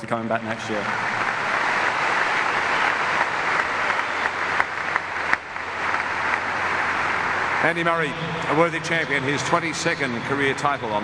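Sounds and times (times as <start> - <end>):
crowd applauding: 0.5 - 11.0
sharp single claps: 2.8 - 6.7.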